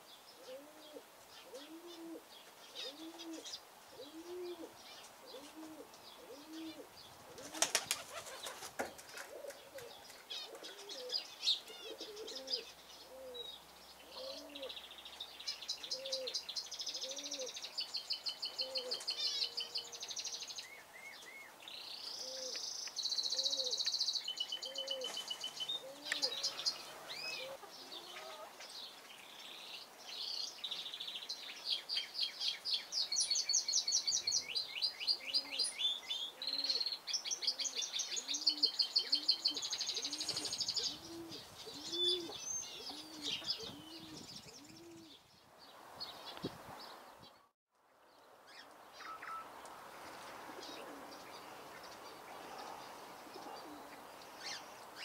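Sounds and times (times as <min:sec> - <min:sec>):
dove cooing: 0:00.4 - 0:14.8, 0:15.9 - 0:17.6, 0:18.5 - 0:20.0, 0:22.1 - 0:22.6, 0:23.2 - 0:23.8, 0:24.6 - 0:28.6, 0:35.2 - 0:35.7, 0:36.3 - 0:45.2, 0:50.5 - 0:51.3, 0:52.4 - 0:54.6
wingbeats flurry: 0:07.4 - 0:09.4.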